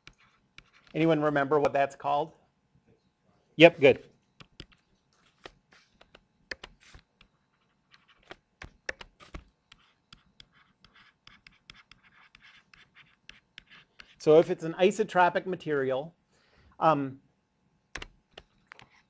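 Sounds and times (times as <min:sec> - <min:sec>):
stylus tapping and writing on screen: 0:00.0 - 0:02.0, 0:03.6 - 0:14.8, 0:17.9 - 0:19.0.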